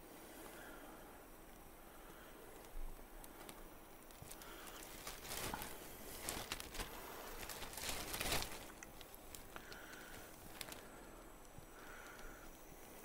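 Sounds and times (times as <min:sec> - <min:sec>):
person breathing: 0:00.0 - 0:13.0
plastic bag crinkling: 0:03.2 - 0:11.1.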